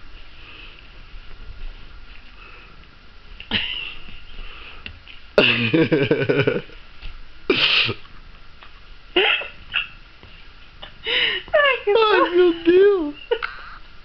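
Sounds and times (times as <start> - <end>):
woman laughing: 3.5 - 4.0, 5.4 - 6.7, 9.2 - 10.0, 10.8 - 13.8
woman gasping: 11.0 - 11.5.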